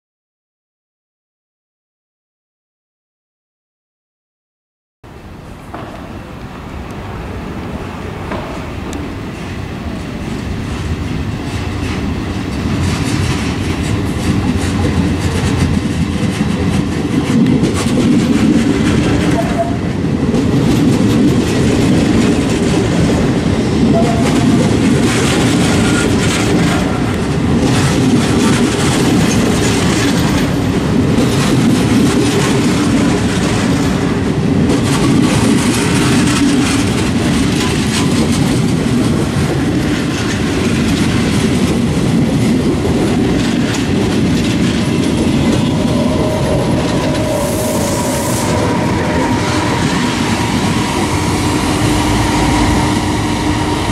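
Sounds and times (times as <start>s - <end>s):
train wheels rumbling: 5.2s - 53.9s
wheels clacking over rail joints: 6.8s - 53.9s.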